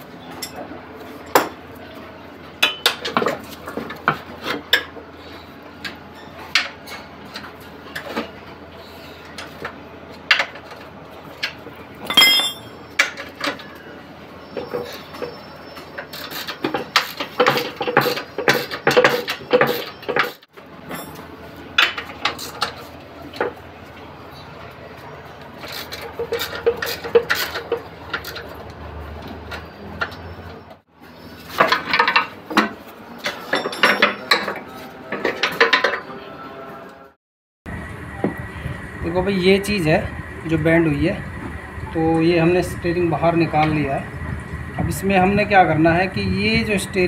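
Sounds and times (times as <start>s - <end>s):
metal tools clinking on steel: 0.3s - 0.7s, 12.0s - 13.6s, 33.2s - 34.6s.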